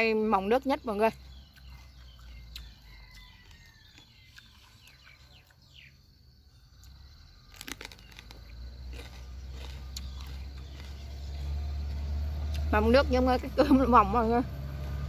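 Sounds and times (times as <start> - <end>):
faint bird chirps: 0.0 - 8.6
chewing: 1.4 - 5.8, 6.8 - 12.7
crunching bite into pepper: 6.8 - 11.9.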